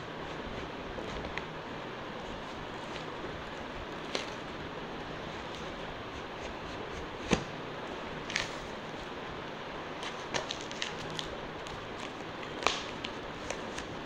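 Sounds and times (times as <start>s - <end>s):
crinkles of card and packing: 8.2s - 9.1s, 10.0s - 14.0s.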